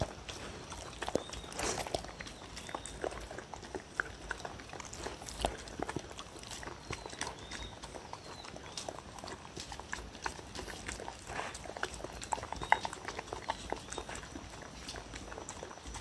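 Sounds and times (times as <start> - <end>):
dog licking and chewing food: 0.0 - 16.0.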